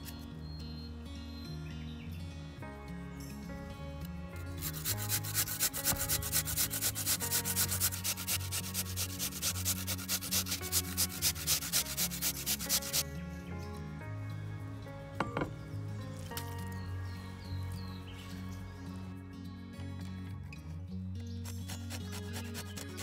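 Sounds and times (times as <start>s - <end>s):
soft background music: 0.0s - 23.0s
squash rasped on a grater: 4.6s - 13.0s, 21.4s - 23.0s.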